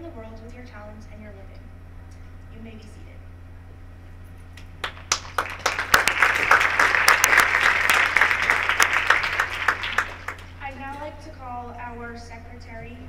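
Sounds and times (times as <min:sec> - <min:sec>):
audience applauding: 0:04.8 - 0:10.6.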